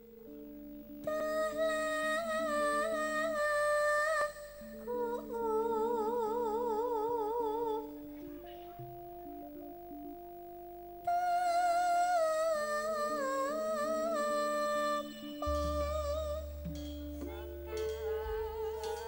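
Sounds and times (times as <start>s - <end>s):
sustained keyboard chords: 0.0s - 19.0s
woman singing held notes: 17.2s - 19.0s.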